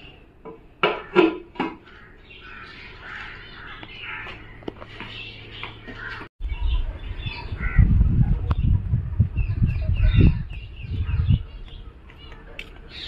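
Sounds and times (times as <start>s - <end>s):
small birds chirping: 1.8s - 13.0s
low rumble on microphone: 6.4s - 12.0s.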